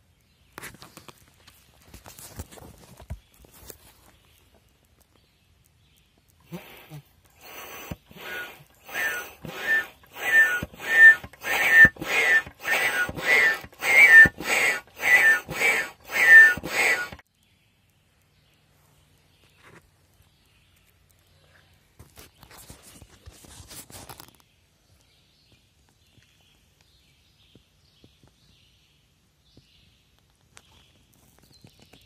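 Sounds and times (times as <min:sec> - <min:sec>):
air pump puffing with squeak: 0:06.4 - 0:17.2.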